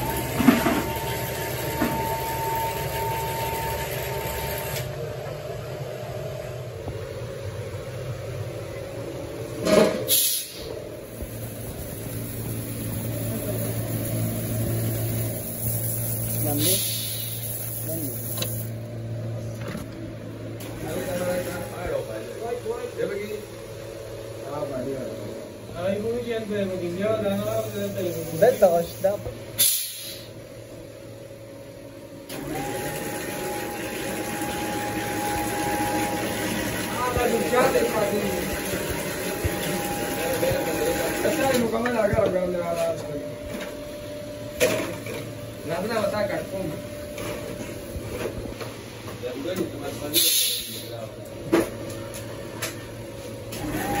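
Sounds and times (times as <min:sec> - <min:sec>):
high mechanical whine: 0:00.0 - 0:54.0
hopper dryer and machinery hum: 0:00.0 - 0:54.0
short loud hisses: 0:10.1 - 0:10.8, 0:16.6 - 0:17.4, 0:29.6 - 0:30.3, 0:50.2 - 0:50.9.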